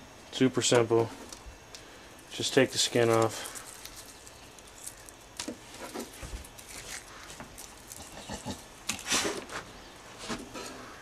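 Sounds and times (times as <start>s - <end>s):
rustle: 0.4s - 11.0s
shrimp shells crackling as peeled: 2.6s - 5.8s, 6.4s - 9.0s.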